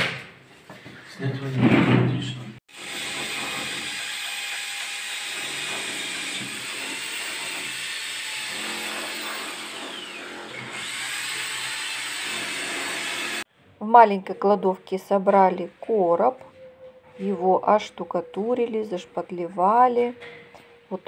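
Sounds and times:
power tool running: 0:02.7 - 0:13.5.

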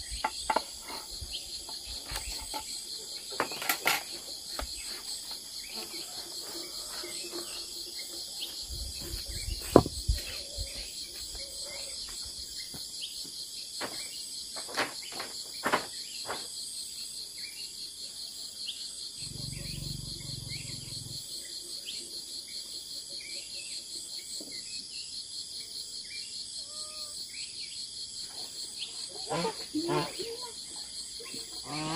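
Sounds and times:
shrill insect chorus: 0:13.8 - 0:23.2, 0:24.9 - 0:31.9.

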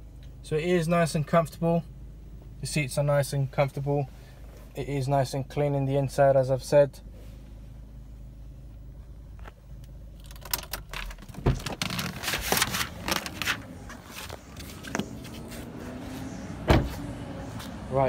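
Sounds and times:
low steady hum: 0:00.0 - 0:18.0
rustling and clicks: 0:09.4 - 0:15.5
car door opening: 0:10.3 - 0:17.8.

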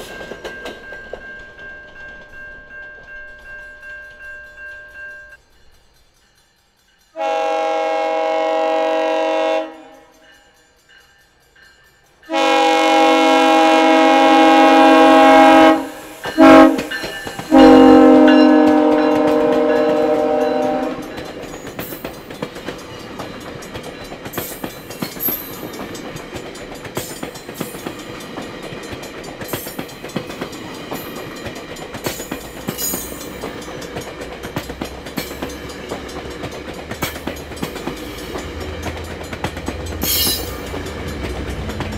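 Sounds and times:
train wheels clattering on rails: 0:00.0 - 0:41.9
train horn blasts: 0:07.2 - 0:10.2, 0:12.3 - 0:21.2.

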